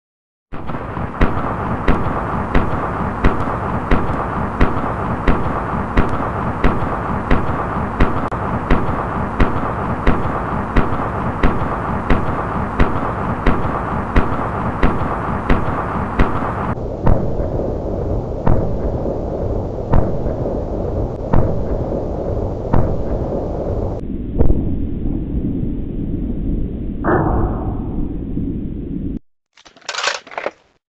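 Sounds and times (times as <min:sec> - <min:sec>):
rifle gunshots: 0:00.6 - 0:16.6, 0:29.8 - 0:30.6
continuous rumbling noise: 0:00.6 - 0:30.6.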